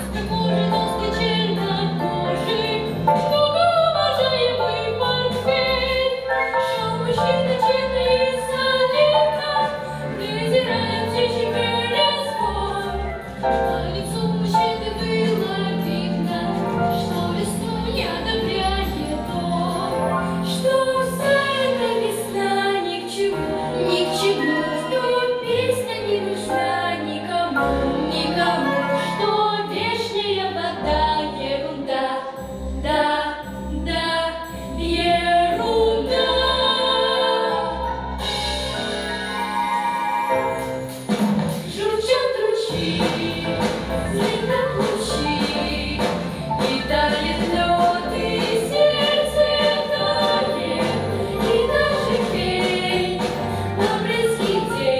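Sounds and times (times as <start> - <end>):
instrumental backing with beat: 38.0 - 42.0
girls singing together: 41.7 - 54.9.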